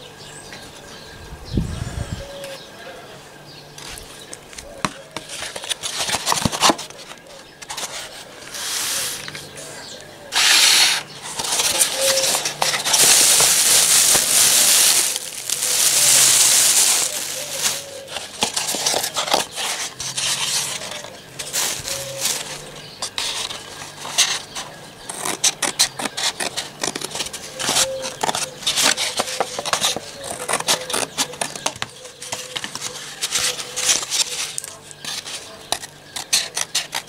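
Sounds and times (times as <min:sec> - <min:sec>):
plastic bag rustling: 0:11.2 - 0:22.7.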